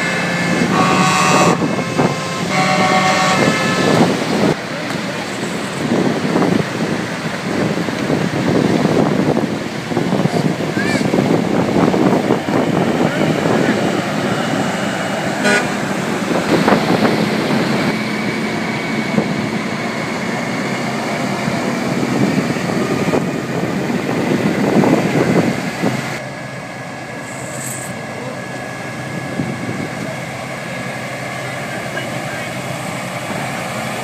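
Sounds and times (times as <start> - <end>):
truck horn toots: 0.0 - 4.5, 15.3 - 17.0
truck diesel engines running: 0.0 - 34.0.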